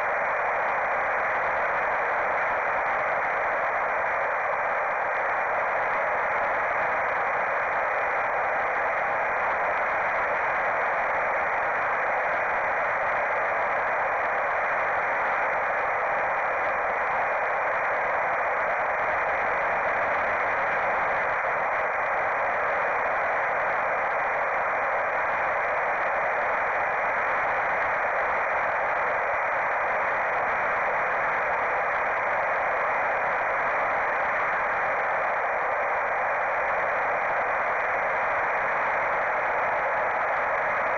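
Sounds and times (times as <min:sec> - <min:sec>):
static hiss: 0:00.0 - 0:40.9.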